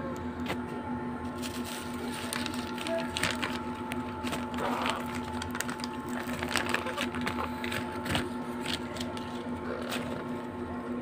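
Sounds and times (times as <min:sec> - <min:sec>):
low electrical hum: 0:00.0 - 0:11.0
newspaper and cardboard rustling: 0:01.3 - 0:10.4.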